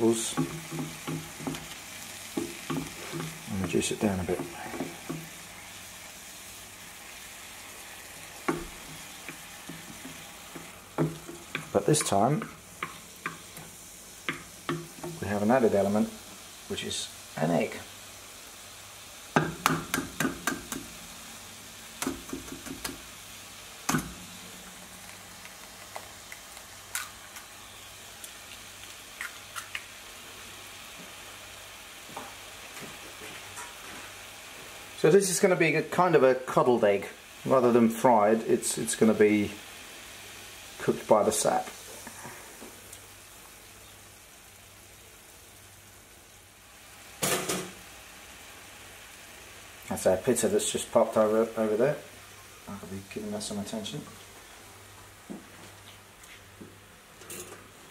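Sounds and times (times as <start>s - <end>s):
food sizzling in a frying pan: 0.0s - 57.9s
sharp knocks and taps: 2.4s - 3.8s, 19.4s - 20.9s, 22.0s - 23.0s
egg cracking: 12.4s - 15.2s, 23.8s - 27.6s, 28.2s - 30.0s
toaster popping up: 47.2s - 47.8s.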